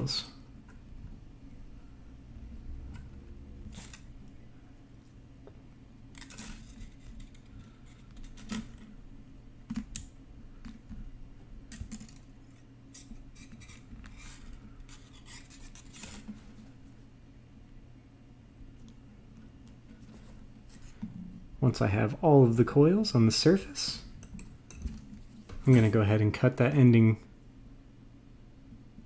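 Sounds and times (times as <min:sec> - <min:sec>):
low steady hum: 0:00.0 - 0:29.0
wire scraping against metal: 0:12.5 - 0:16.3.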